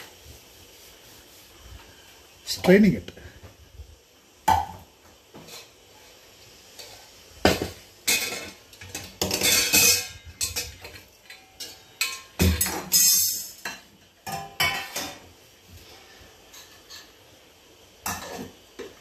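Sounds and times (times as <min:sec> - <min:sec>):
pots and utensils clattering: 0:04.4 - 0:17.4, 0:18.0 - 0:19.0.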